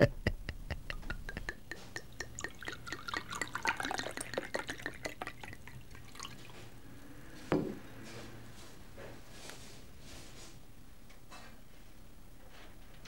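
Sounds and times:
water drops plinking: 1.1s - 5.7s.

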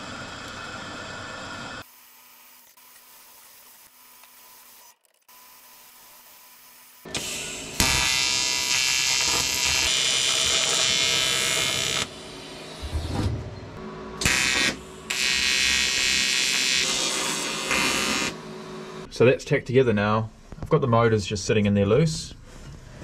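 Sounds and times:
welding arc buzzing: 1.8s - 12.9s, 14.2s - 19.1s.

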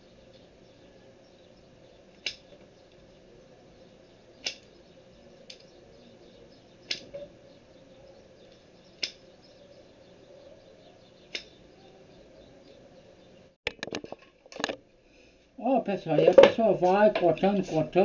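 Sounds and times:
blade snapping clicks: 2.2s - 2.6s, 4.4s - 4.7s, 6.8s - 7.2s, 8.5s - 9.2s, 11.3s - 11.6s.

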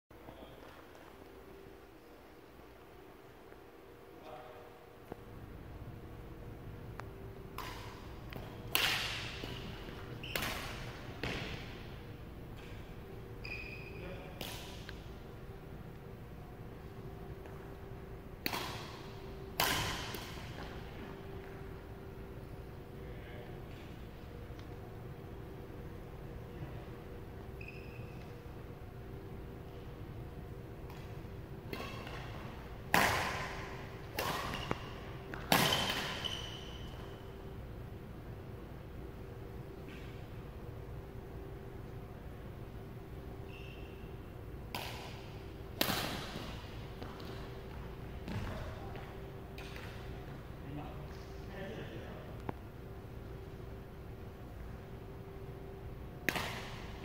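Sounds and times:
racket hitting shuttlecock: 7.5s - 11.8s, 18.4s - 21.6s, 30.8s - 36.8s, 44.7s - 48.7s, 56.2s - 57.0s
shoe squeak: 9.5s - 10.6s, 13.4s - 14.3s, 27.6s - 28.4s, 35.6s - 37.2s, 43.4s - 44.2s.

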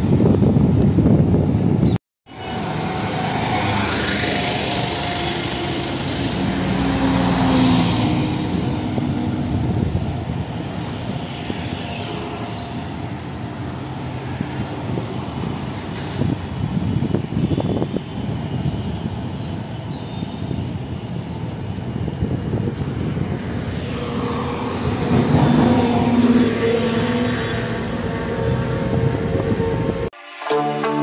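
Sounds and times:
wind rumble on microphone: 0.0s - 2.0s, 6.2s - 30.1s
highway traffic noise: 0.0s - 30.2s
vehicle engine passing: 2.4s - 12.5s, 22.6s - 30.1s.

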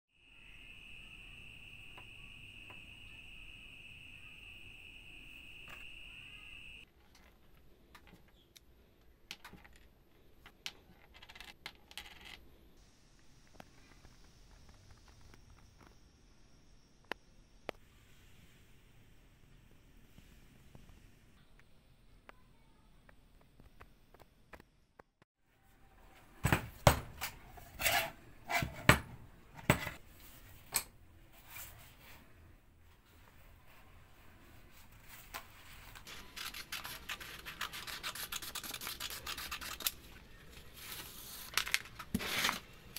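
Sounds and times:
paper sheets rustling: 34.8s - 40.0s, 40.6s - 42.7s.

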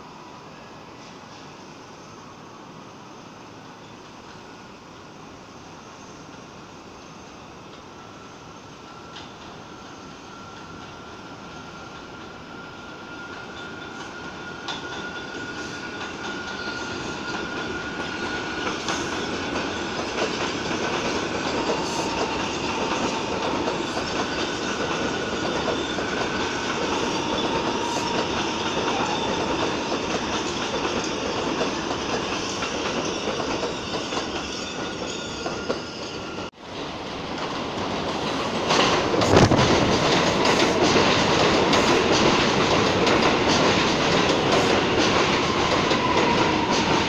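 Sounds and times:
subway train passing: 0.0s - 47.0s
high wheel squeal: 8.0s - 36.5s, 44.1s - 47.0s.

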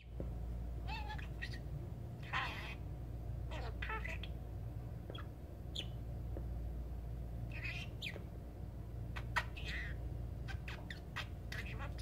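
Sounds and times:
steady low hum: 0.0s - 12.0s
budgerigar chirping and chattering: 0.9s - 2.8s, 3.5s - 4.4s, 5.1s - 6.0s, 7.5s - 8.3s, 9.1s - 12.0s.

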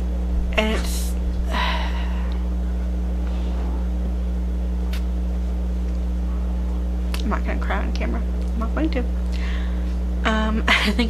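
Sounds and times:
steady low hum: 0.0s - 11.0s
faint breath: 9.3s - 10.0s.

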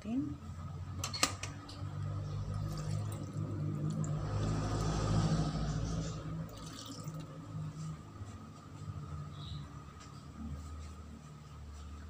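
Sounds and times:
low steady hum: 0.0s - 12.0s
liquid pouring and splashing: 2.5s - 4.9s, 6.5s - 7.3s.

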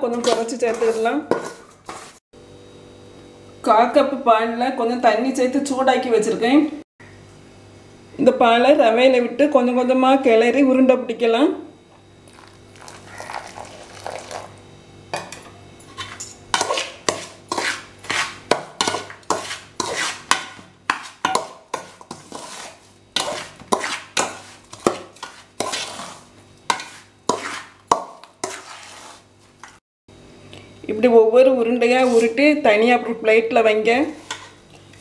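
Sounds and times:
metal spoon scraping pot: 0.1s - 2.2s, 15.9s - 27.8s, 28.4s - 29.8s, 34.1s - 34.6s.

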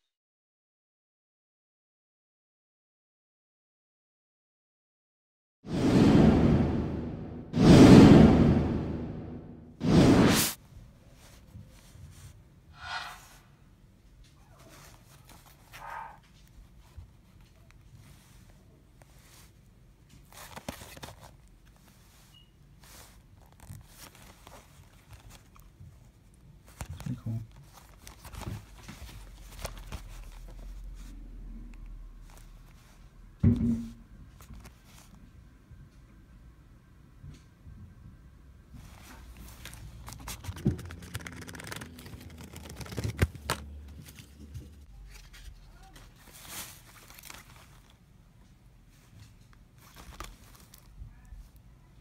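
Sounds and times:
case rustling in hands: 20.2s - 25.8s, 26.6s - 30.9s, 38.8s - 48.0s, 49.8s - 51.0s.

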